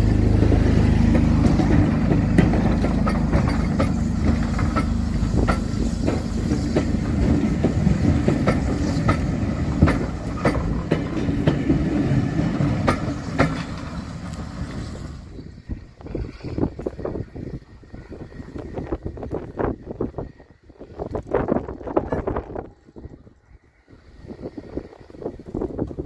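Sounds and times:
train coaches rumbling past: 0.0s - 26.0s
wheels clicking over rail joints: 0.0s - 26.0s.

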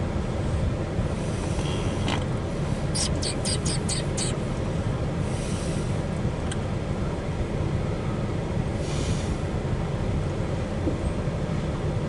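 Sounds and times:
short hisses: 2.8s - 4.4s, 5.3s - 6.0s, 8.8s - 9.4s.

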